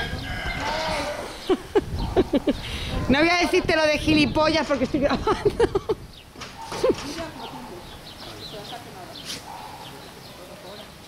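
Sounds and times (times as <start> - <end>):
farm animal calling: 0.0 - 4.2, 6.5 - 10.8.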